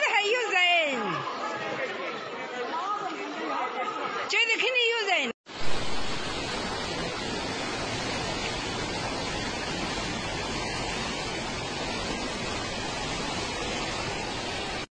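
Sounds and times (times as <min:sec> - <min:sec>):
floodwater rushing: 0:05.5 - 0:14.9.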